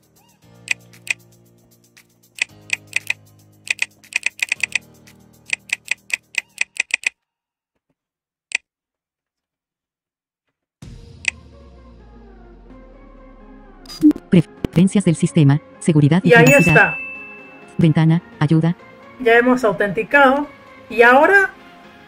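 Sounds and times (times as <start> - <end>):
fast typing on keyboard: 2.4 - 4.8, 5.5 - 7.1.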